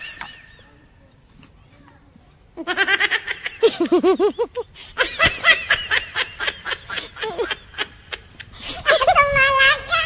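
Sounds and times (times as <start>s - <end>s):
high-pitched laughter: 2.6s - 10.0s.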